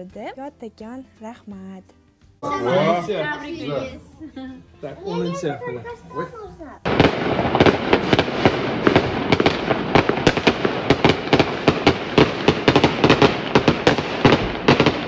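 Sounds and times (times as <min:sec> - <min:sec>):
fireworks crackling and banging: 0:06.8 - 0:15.0.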